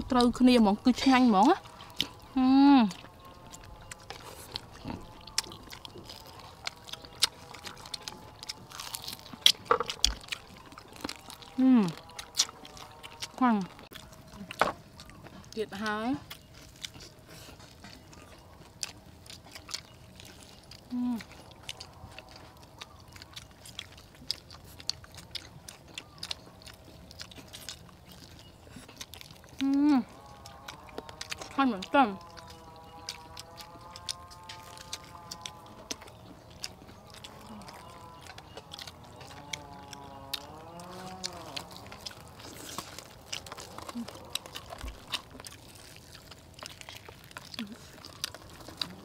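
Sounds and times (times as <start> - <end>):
crisp coating crackling: 0.0 - 49.0
crunching fried chicken: 0.0 - 49.0
person humming: 2.3 - 3.0, 11.6 - 12.0, 29.6 - 30.2.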